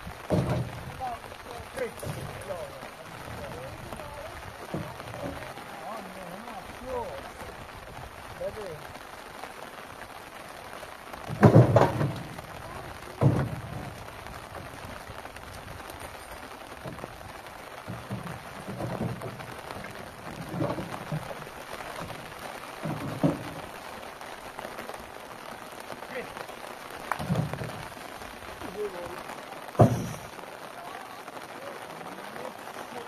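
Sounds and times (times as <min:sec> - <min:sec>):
logs thudding onto truck: 0:00.0 - 0:06.0, 0:11.2 - 0:15.0, 0:16.8 - 0:23.9, 0:27.0 - 0:28.7, 0:29.7 - 0:30.4
steady rushing hiss: 0:00.0 - 0:33.0.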